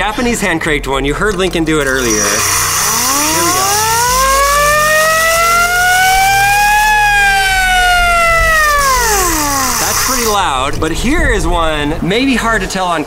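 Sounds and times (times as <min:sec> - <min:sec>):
hand-cranked air-raid siren wailing: 0:01.9 - 0:10.4.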